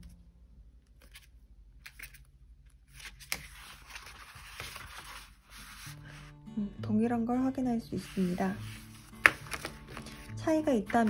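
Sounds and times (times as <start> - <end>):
paper pages rustling: 0.9 - 6.3, 8.0 - 11.0
paper sliding: 2.9 - 6.3, 8.0 - 11.0.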